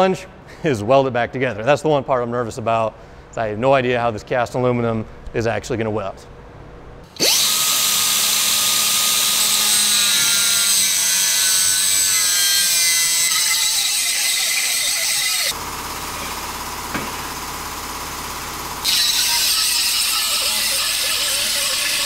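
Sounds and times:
cutoff wheel grinding metal: 7.1s - 15.6s, 18.8s - 22.0s.

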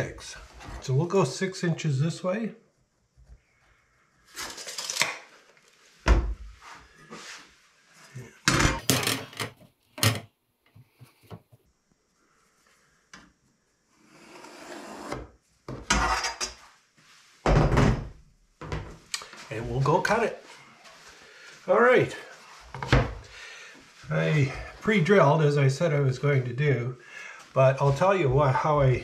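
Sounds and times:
ruler scraping on wood: 14.0s - 15.2s.

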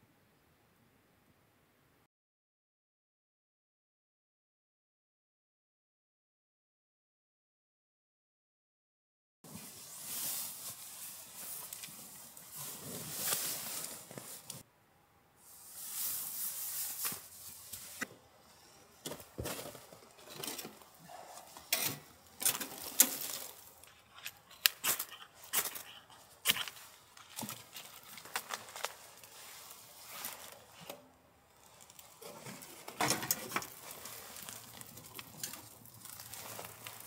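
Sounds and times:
soft rustling: 9.5s - 14.6s, 15.4s - 18.2s, 19.1s - 31.0s, 31.6s - 37.0s.

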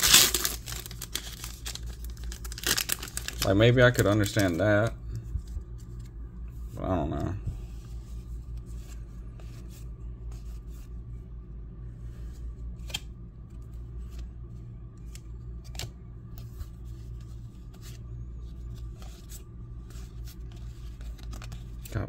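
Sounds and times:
steady low hum: 0.0s - 22.0s
trading cards flicking and sliding: 19.9s - 21.9s.

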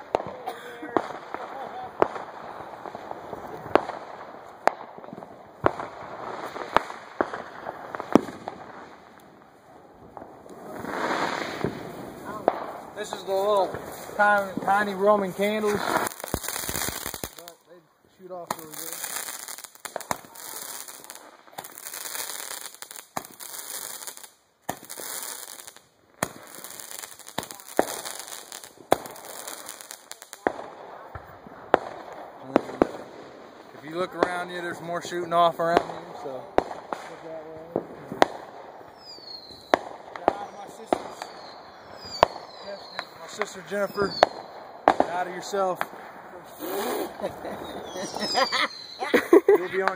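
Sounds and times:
faint pops and crackles: 0.0s - 49.1s
fireworks popping: 0.0s - 49.9s
burning sparks hissing: 10.4s - 17.6s, 18.4s - 30.4s, 46.5s - 49.9s.

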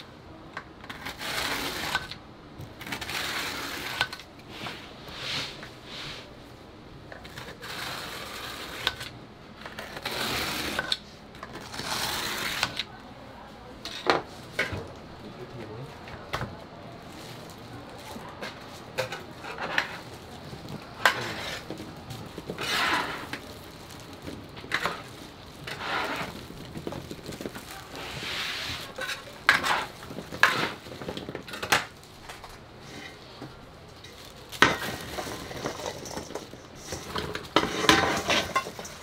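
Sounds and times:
rustling: 16.6s - 39.0s.

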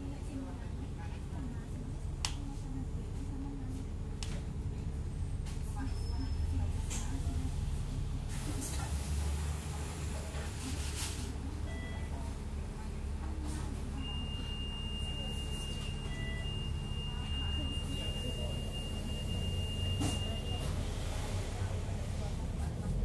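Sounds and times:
bus engine rumble: 0.0s - 23.0s
short high beeps: 14.0s - 20.8s.

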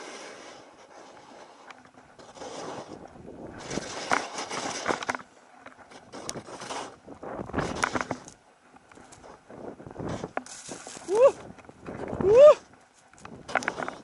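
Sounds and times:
skis hissing through powder snow: 0.0s - 5.0s, 6.1s - 7.0s, 10.1s - 11.4s.

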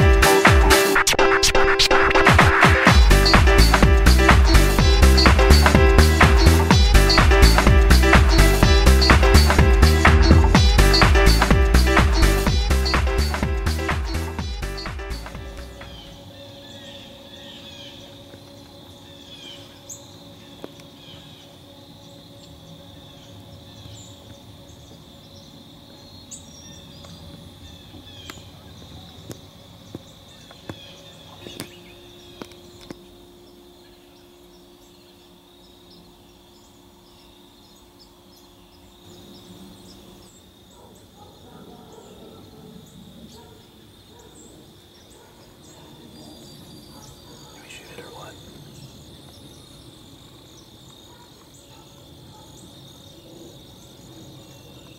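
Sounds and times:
bird calls: 2.8s - 54.9s
steady high hum: 2.9s - 41.1s.

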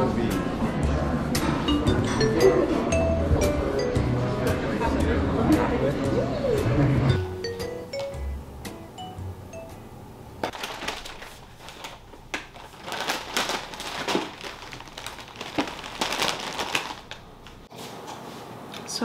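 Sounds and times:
foil chip bag crinkling: 10.4s - 17.7s
shopping bag rustling: 10.4s - 17.7s.

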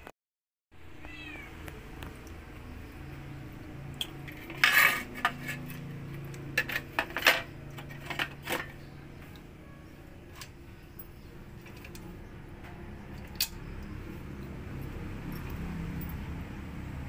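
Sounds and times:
sharp metal clicks: 13.1s - 14.6s.

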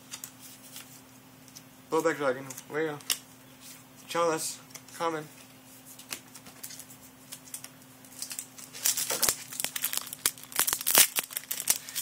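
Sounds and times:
foil wrapper crinkling and tearing: 6.7s - 12.0s.

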